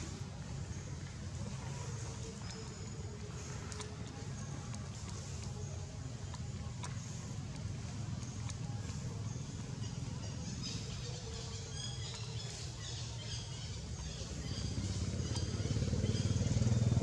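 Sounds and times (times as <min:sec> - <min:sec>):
birds chirping: 0:00.0 - 0:17.0
vehicle engine running: 0:13.3 - 0:17.0.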